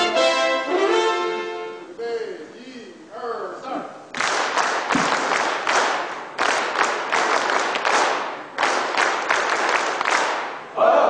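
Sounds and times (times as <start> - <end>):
audience clapping in rhythm: 4.1 - 10.7.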